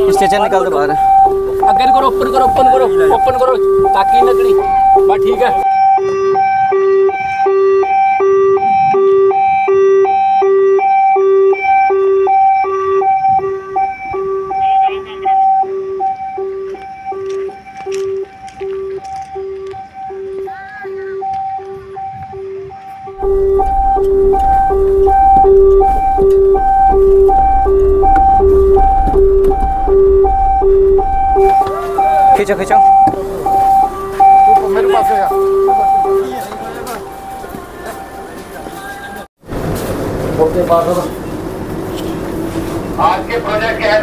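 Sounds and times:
van engine rumble: 0:00.0 - 0:05.9, 0:23.2 - 0:44.0
two-tone ambulance siren: 0:00.0 - 0:39.7, 0:40.3 - 0:44.0
road noise: 0:00.0 - 0:44.0.

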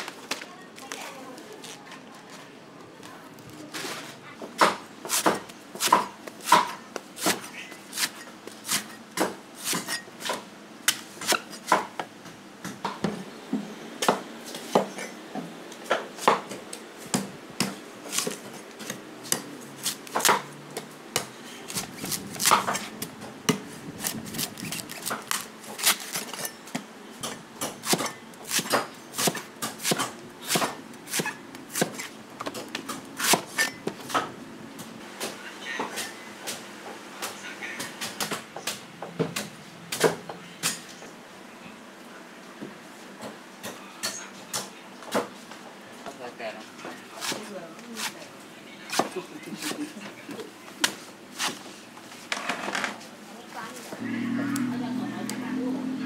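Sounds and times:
cleaver chopping coconut husk: 0:04.6 - 0:13.0, 0:15.9 - 0:34.3, 0:47.2 - 0:48.2, 0:48.9 - 0:49.9.

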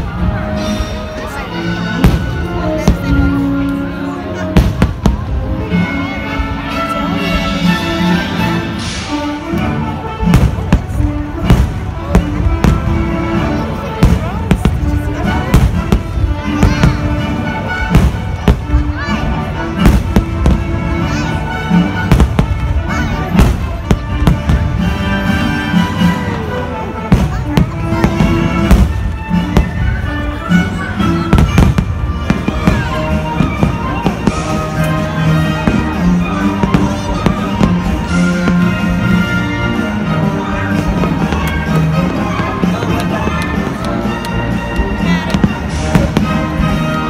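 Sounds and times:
fireworks bursting: 0:00.0 - 0:03.8, 0:04.4 - 0:05.7, 0:08.2 - 0:47.0
loud show music: 0:00.0 - 0:47.0.

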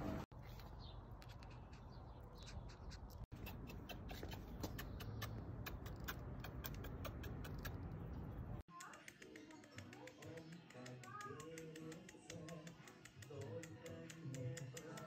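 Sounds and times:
rapid sharp clicks: 0:08.7 - 0:15.0.

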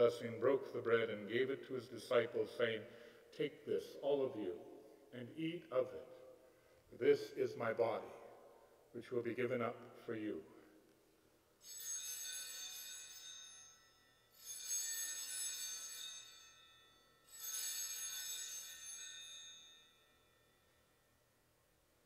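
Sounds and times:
altar bells ringing: 0:11.6 - 0:21.1.

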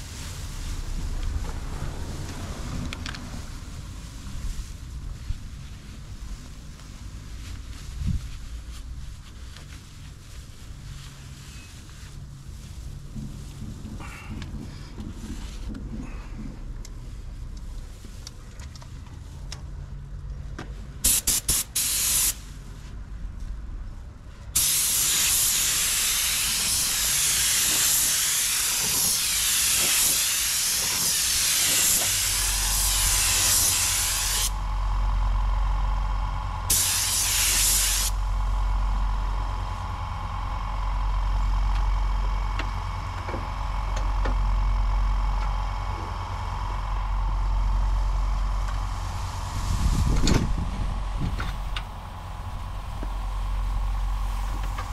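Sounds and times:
spray gun hissing: 0:21.0 - 0:22.5, 0:24.6 - 0:34.6, 0:36.7 - 0:38.2, 0:48.8 - 0:54.9.

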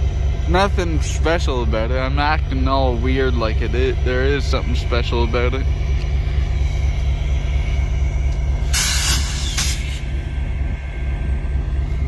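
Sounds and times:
diesel locomotive idling: 0:00.0 - 0:12.0
compressed air hiss: 0:08.6 - 0:10.1.

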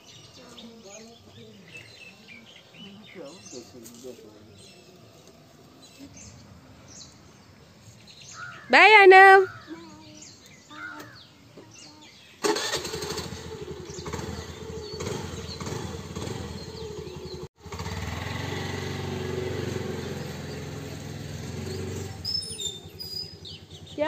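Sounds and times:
scooter engine running: 0:12.4 - 0:24.0.

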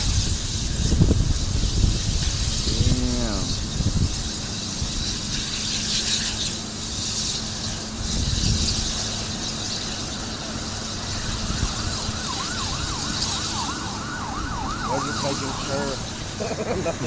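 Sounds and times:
steady rushing background noise: 0:00.0 - 0:17.0
emergency siren yelping: 0:10.6 - 0:16.6.

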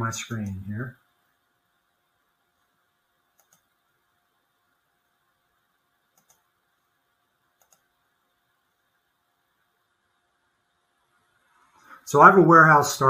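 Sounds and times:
faint computer mouse clicks: 0:03.3 - 0:03.8, 0:06.1 - 0:06.5, 0:07.6 - 0:07.9.

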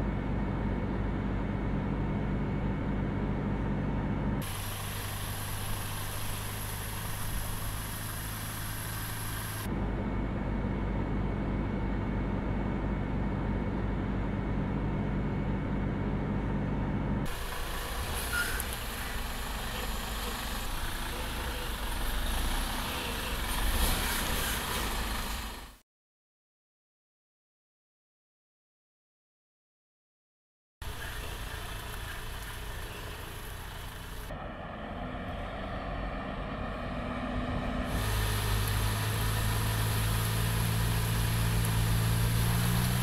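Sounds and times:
truck cab hum: 0:00.0 - 0:12.4, 0:15.9 - 0:25.8, 0:30.8 - 0:34.4, 0:37.9 - 0:43.0
truck rolling up: 0:17.3 - 0:25.8.

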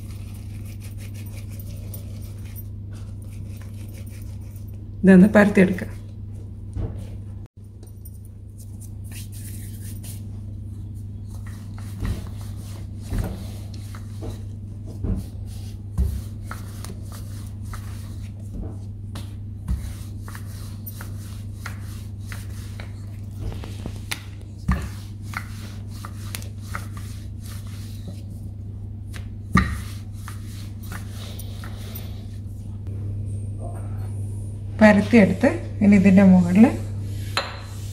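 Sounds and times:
low hum: 0:31.2 - 0:37.9.

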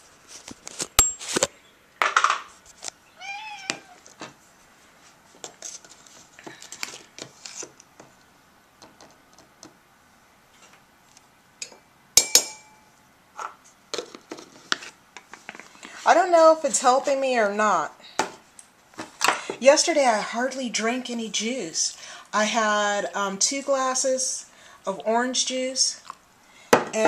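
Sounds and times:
cat meowing: 0:03.1 - 0:04.1
spoon clinking against glass: 0:12.2 - 0:12.8.

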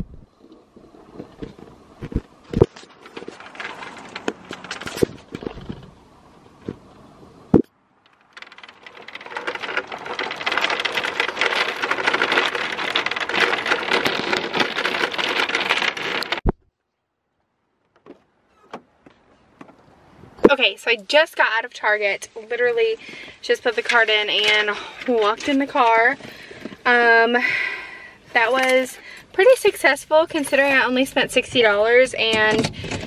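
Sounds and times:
cart wheels rattling on asphalt: 0:00.7 - 0:06.9, 0:07.9 - 0:16.5, 0:20.4 - 0:33.0
shopping cart knocks and clicks: 0:30.2 - 0:33.0.

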